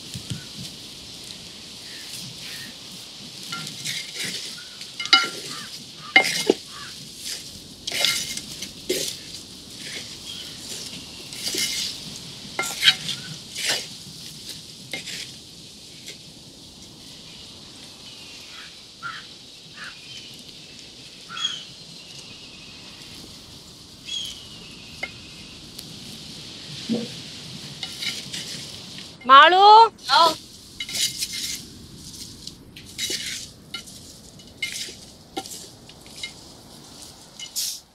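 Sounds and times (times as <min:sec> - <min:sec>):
chicken sizzling in a pan: 0:00.0 - 0:29.2
wooden spatula scraping a pan: 0:03.4 - 0:12.0, 0:12.6 - 0:14.0, 0:14.9 - 0:15.4, 0:26.8 - 0:28.8, 0:30.0 - 0:36.4.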